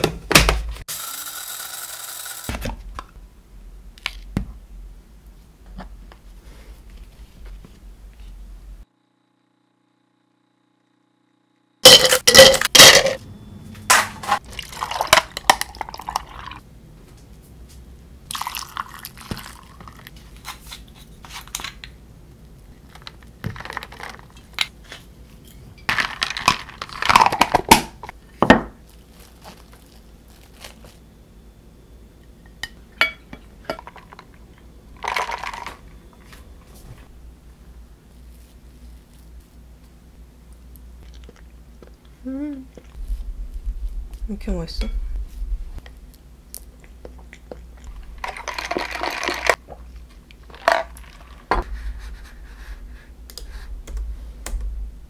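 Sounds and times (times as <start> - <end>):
ice and cup clattering: 11.8 - 13.2, 14.2 - 16.6, 25.9 - 27.7, 35.0 - 35.8, 48.1 - 49.6, 50.5 - 51.6
liquid pouring: 14.4 - 16.6, 18.3 - 20.1
rustling: 28.8 - 31.0
glassware clinking: 32.5 - 34.2.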